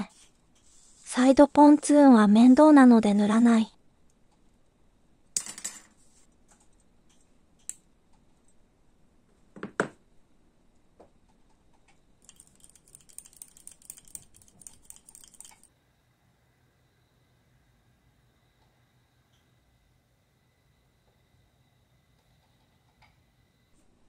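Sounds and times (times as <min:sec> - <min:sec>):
glass jar clicking and scraping: 0:12.2 - 0:15.7.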